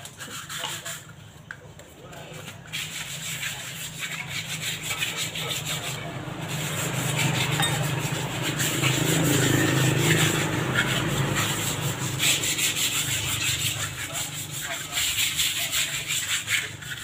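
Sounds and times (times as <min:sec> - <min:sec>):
hands scraping cement pots: 0:00.0 - 0:17.0
motorbike engine: 0:05.6 - 0:14.7.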